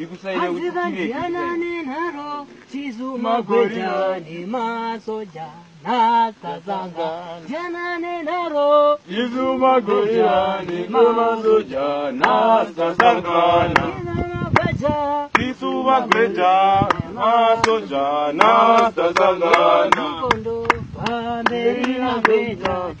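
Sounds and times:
men chanting together: 0.0 - 5.2, 5.8 - 7.8, 8.4 - 14.1, 14.8 - 23.0
sharp hand claps: 13.0 - 14.0, 15.4 - 16.3, 16.9 - 17.8, 18.4 - 22.8.

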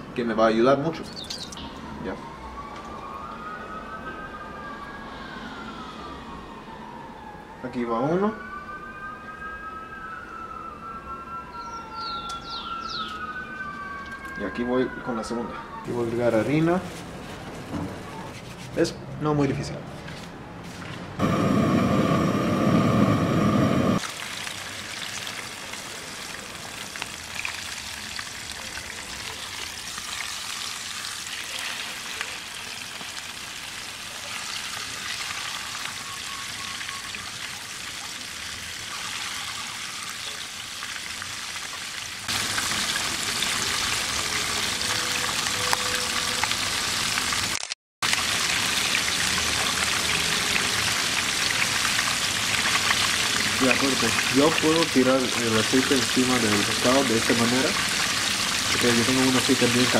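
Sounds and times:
hot oil sizzling: 21.2 - 59.9.

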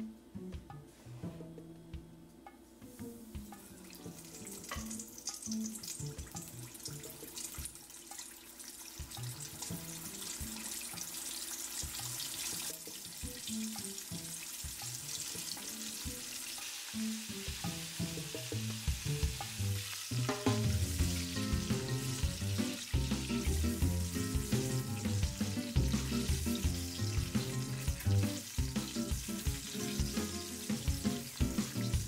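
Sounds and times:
hot oil sizzling: 2.9 - 32.0
jazz samba music: 9.0 - 32.0.

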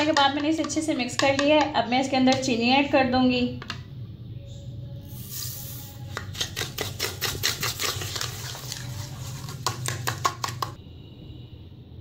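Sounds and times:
sugar poured into bowl: 5.1 - 10.2.

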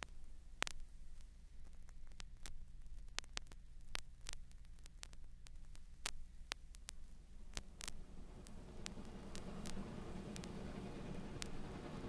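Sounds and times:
turntable low hum: 0.0 - 12.0
vinyl clicks and pops: 0.0 - 12.0.

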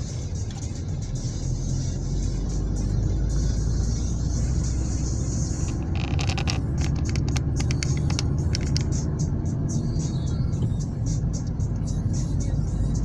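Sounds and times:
car tyres and engine rumble: 0.0 - 13.0
sharp ticks and clicks: 5.4 - 9.4.

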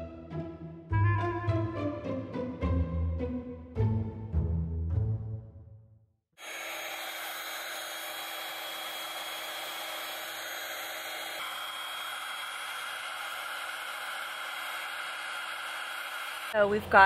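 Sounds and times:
electric air pump running: 6.4 - 16.6.

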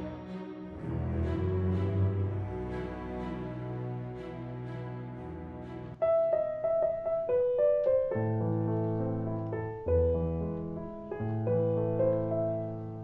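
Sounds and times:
slow piano melody: 0.0 - 13.0
deep piano bass notes: 6.0 - 13.0.

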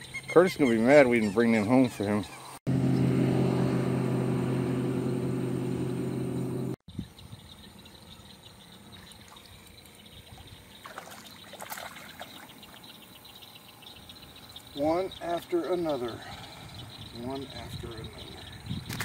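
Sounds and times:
boat motor running: 2.7 - 6.8
fish splashing at surface: 10.8 - 12.8.

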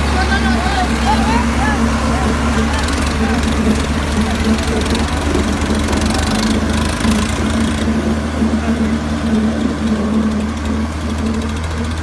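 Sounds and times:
tractor diesel engines under load: 0.0 - 12.0.

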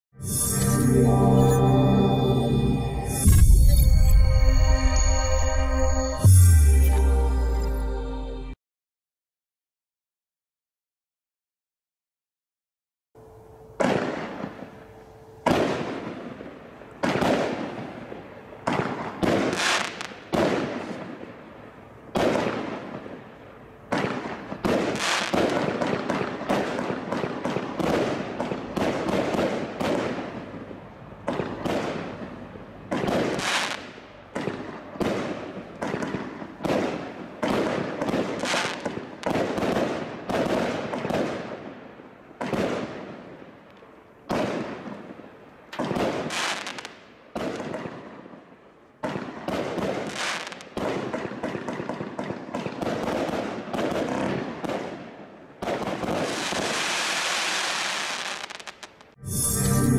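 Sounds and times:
firework aerial bursts: 18.7 - 21.1, 23.9 - 30.3, 33.0 - 41.4, 55.6 - 59.9.

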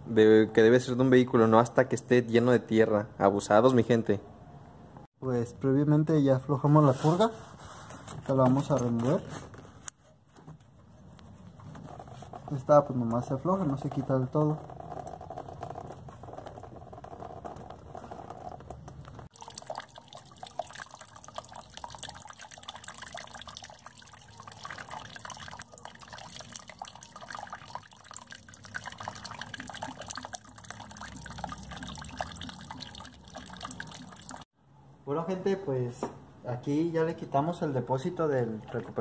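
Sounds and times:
liquid trickling and splashing: 12.0 - 34.5.

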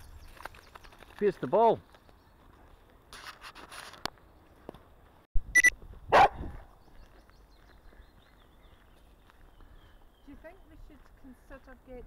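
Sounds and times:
dog barking and yelping: 6.1 - 6.4.

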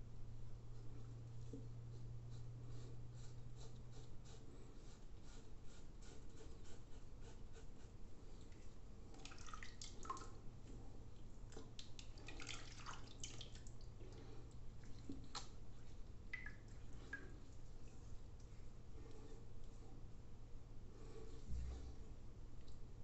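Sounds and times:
water splashing and dripping: 9.1 - 10.3, 11.5 - 13.9, 16.3 - 17.2.

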